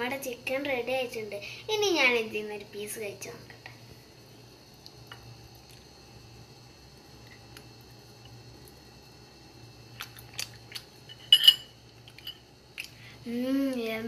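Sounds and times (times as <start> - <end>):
eating sounds: 9.9 - 11.0.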